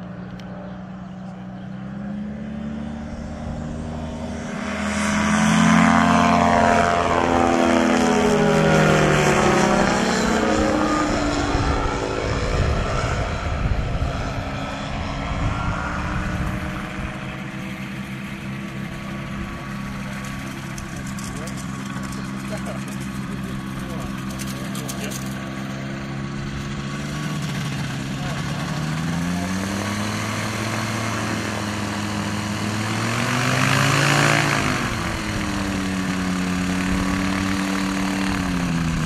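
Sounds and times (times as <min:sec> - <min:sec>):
light aircraft engine and propeller: 0:00.0 - 0:39.0.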